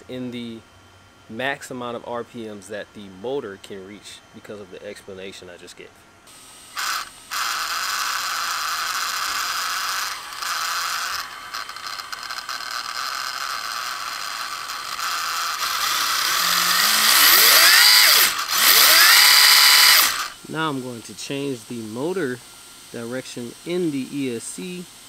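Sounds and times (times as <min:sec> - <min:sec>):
electric motor whirring and whining: 0:06.3 - 0:25.0.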